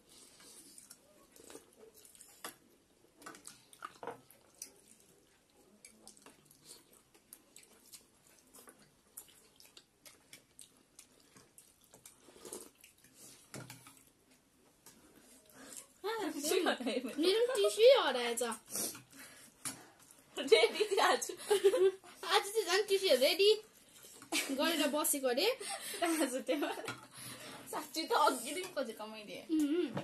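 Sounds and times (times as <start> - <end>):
noodles slurped and chewed: 0.0 - 16.0, 18.5 - 20.4.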